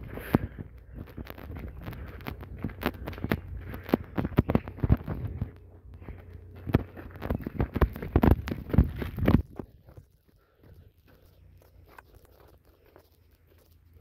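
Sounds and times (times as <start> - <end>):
low rumble: 0.0 - 12.0
footsteps crunching on leaves and twigs: 0.0 - 14.0.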